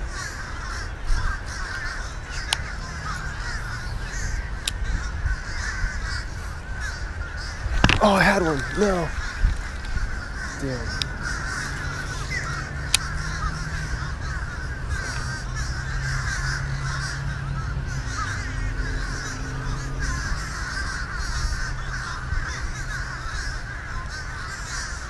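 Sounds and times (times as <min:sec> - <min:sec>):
harsh bird calls chorus: 0:00.0 - 0:25.0.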